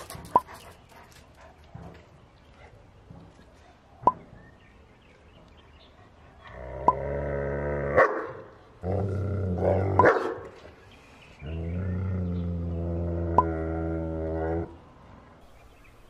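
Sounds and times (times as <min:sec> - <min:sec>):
dog growling: 0:06.4 - 0:08.1, 0:11.4 - 0:14.8
dog barking: 0:08.0 - 0:08.4, 0:10.0 - 0:10.5.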